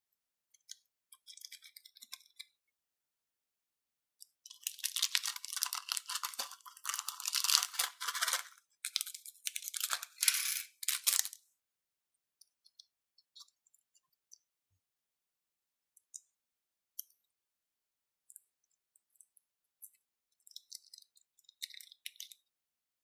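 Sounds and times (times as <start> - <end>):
plastic bag crinkling: 4.5 - 11.4.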